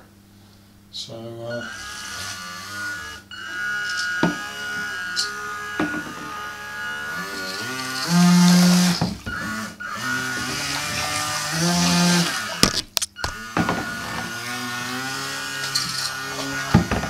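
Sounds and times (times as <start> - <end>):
small electric motor whining: 1.5 - 17.0
sharp clicks: 3.3 - 6.3.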